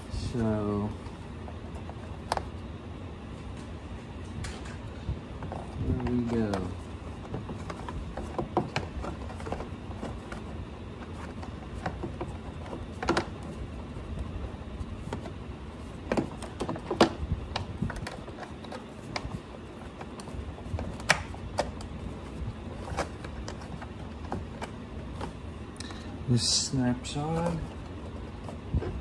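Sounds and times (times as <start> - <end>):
sharp plastic knocks: 5.4 - 13.5, 16.0 - 21.9.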